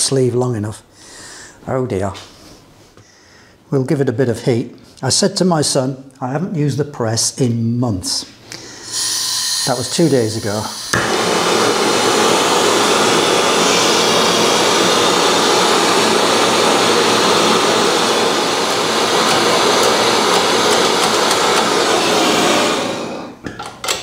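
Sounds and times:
gas blowtorch hissing: 0:08.6 - 0:23.4.

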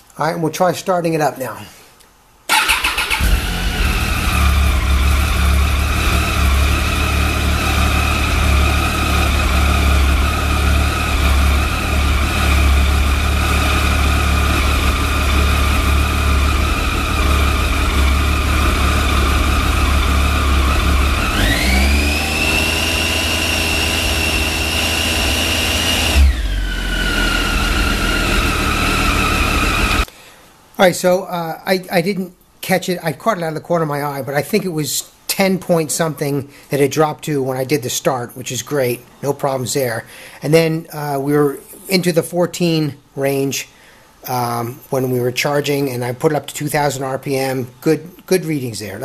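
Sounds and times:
motorcycle engine idling and revving: 0:02.5 - 0:30.1.

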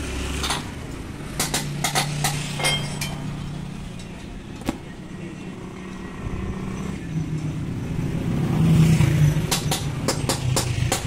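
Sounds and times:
sharp metallic clinks: 0:01.8 - 0:04.2.

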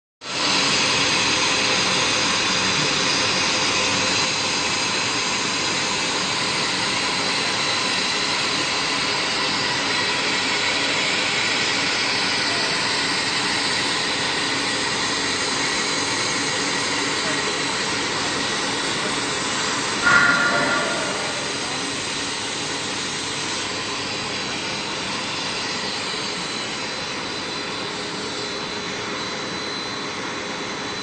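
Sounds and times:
high motor whining tones: 0:17.2 - 0:22.5.

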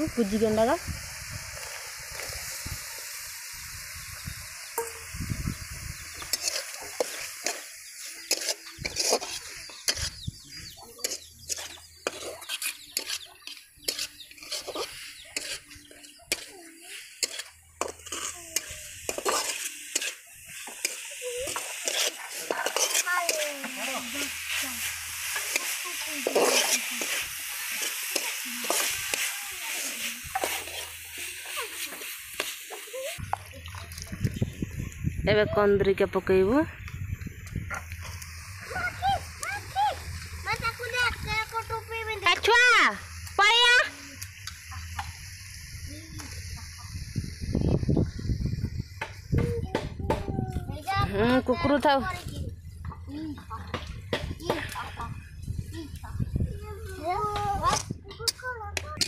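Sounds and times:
food sizzling in hot oil: 0:00.0 - 0:57.8
spatula scraping and clinking pan: 0:06.2 - 0:10.2, 0:11.0 - 0:32.9.

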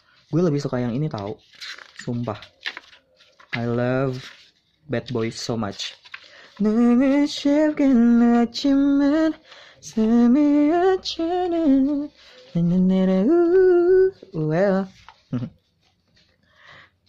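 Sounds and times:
person singing unaccompanied: 0:06.4 - 0:15.6.

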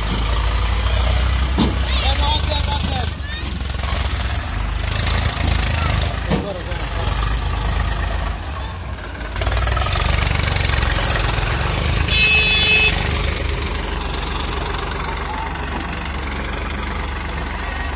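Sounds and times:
tractor diesel engine under load: 0:00.0 - 0:17.9.

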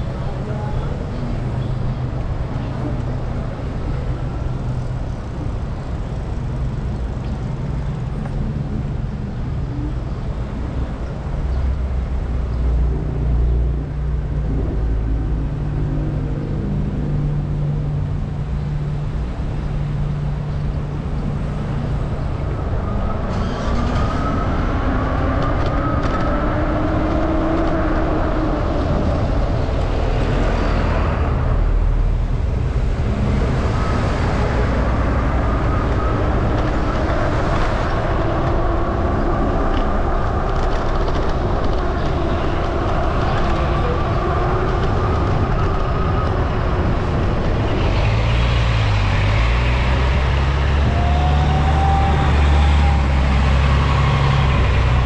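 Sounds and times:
road traffic rumble: 0:00.0 - 0:55.0
vehicle engine accelerating: 0:11.6 - 0:55.0.

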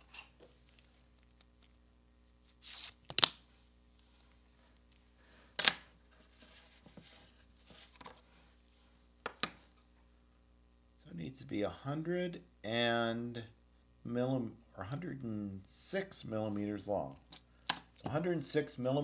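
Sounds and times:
soft rustling: 0:06.0 - 0:09.9.

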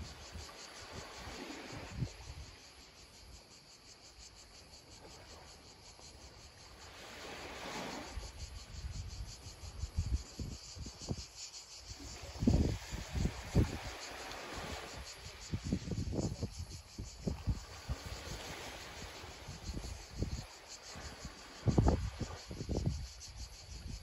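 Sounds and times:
small wave washing ashore: 0:00.0 - 0:03.0, 0:04.9 - 0:08.8, 0:11.9 - 0:15.9, 0:16.5 - 0:23.2
insects chirping: 0:00.0 - 0:24.0
wind buffeting microphone: 0:08.3 - 0:11.4, 0:12.0 - 0:24.0.

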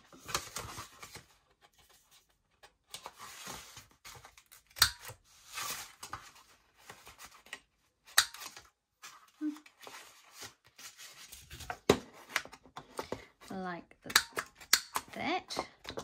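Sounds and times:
card rustling and sliding: 0:00.0 - 0:07.7, 0:08.4 - 0:13.3.

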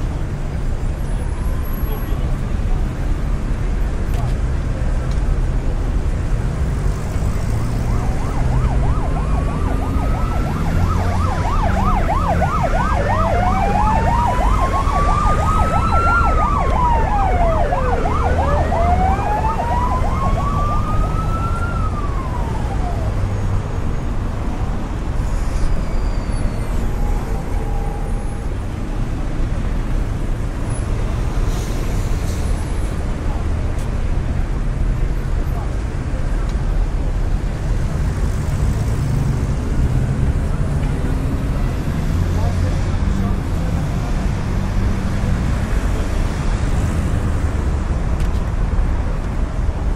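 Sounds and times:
low traffic rumble: 0:00.0 - 0:49.9
siren yelp: 0:07.6 - 0:23.5
siren wail: 0:07.6 - 0:23.6.

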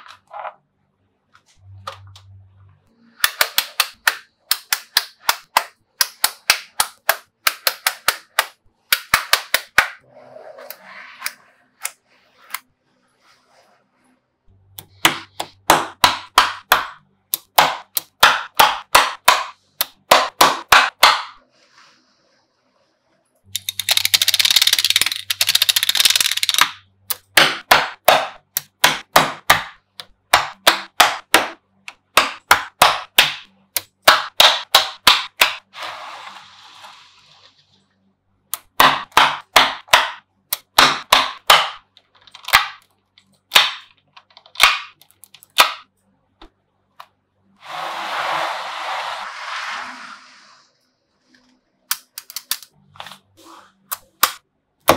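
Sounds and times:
magnetic balls clicking: 0:23.5 - 0:27.4.

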